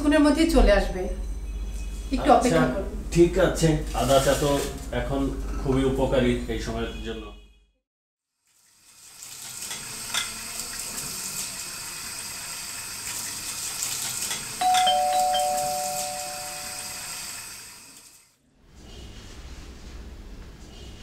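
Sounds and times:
steady kitchen hiss: 2.3 - 5.3, 8.5 - 21.0
dishes and utensils clinking: 14.3 - 16.6
ding-dong doorbell chime: 14.6 - 17.1.

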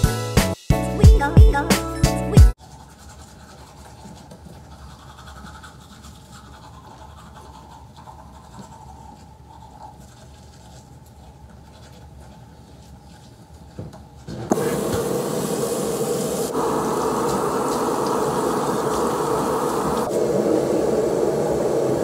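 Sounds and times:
toothbrushes scrubbing teeth: 2.6 - 13.4.

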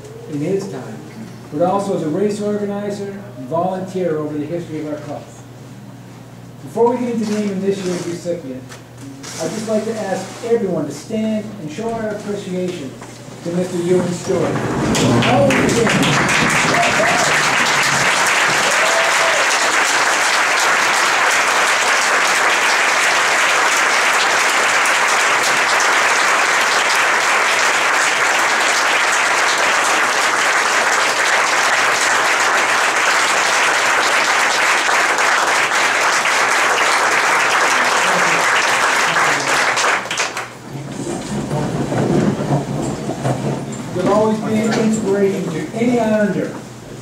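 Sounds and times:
audience applauding: 13.8 - 40.6.

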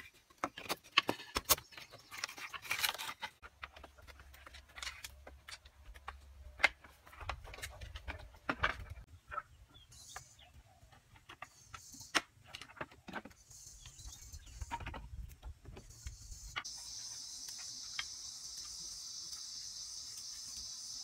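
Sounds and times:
bamboo pieces knocking: 0.0 - 9.5
high insect drone: 16.7 - 21.0
insects calling in bursts: 16.7 - 21.0.

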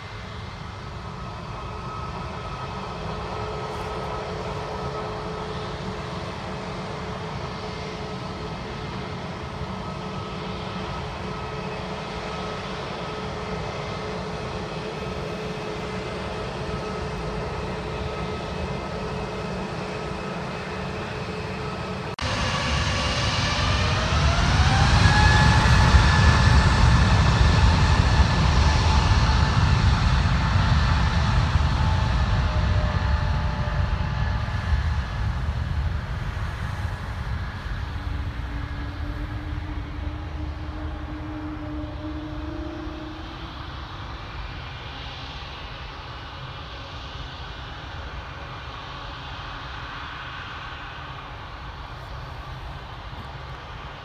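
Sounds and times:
jet engines idling: 0.0 - 54.0
jet engines spooling up: 0.0 - 54.0.

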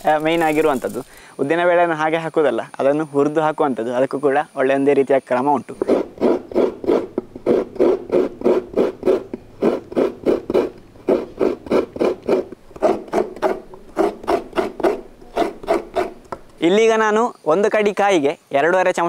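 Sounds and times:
coconut scraping on metal blade: 0.0 - 1.2, 5.7 - 16.7.

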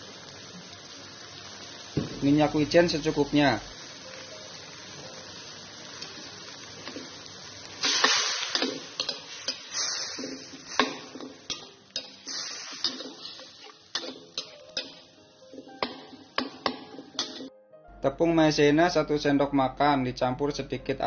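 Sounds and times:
faint sizzle: 0.0 - 21.0
metal spatula scraping wok: 7.8 - 15.7.

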